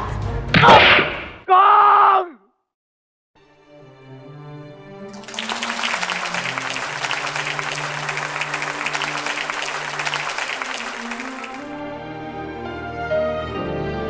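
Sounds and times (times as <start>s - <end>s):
background music with held notes: 3.4s - 14.0s
audience applauding: 5.1s - 11.7s.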